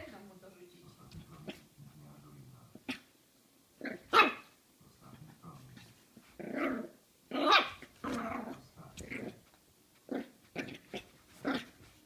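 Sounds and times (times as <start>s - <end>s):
puppy growling: 3.8s - 4.4s, 5.2s - 9.5s, 10.1s - 11.8s
puppy barking: 3.9s - 4.5s, 7.3s - 7.9s.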